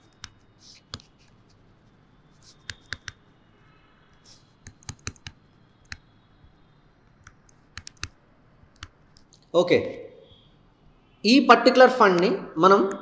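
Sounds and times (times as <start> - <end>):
stylus tapping on tablet screen: 2.4 - 3.2, 4.6 - 6.0.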